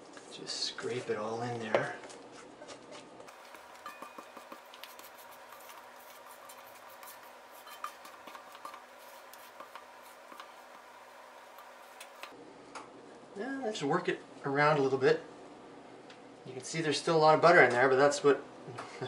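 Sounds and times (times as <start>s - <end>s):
spatula scraping mixing bowl: 3.3s - 12.3s.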